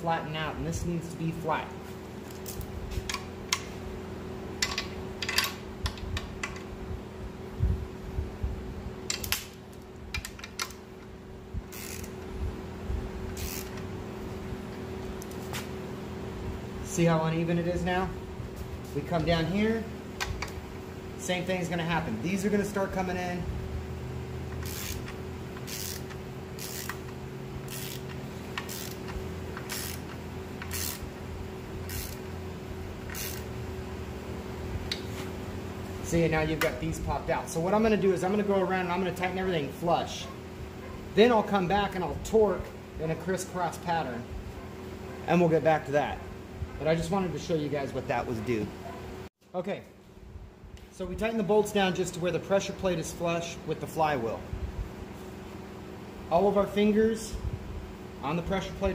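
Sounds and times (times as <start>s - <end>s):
steady low hum: 0.0s - 58.9s
speed wrench metallic clicks: 11.7s - 12.2s, 24.5s - 31.1s, 31.8s - 32.2s, 33.0s - 33.5s
wrench rasps: 11.7s - 12.2s, 13.4s - 13.8s, 24.5s - 31.1s, 31.8s - 32.2s, 33.0s - 33.5s.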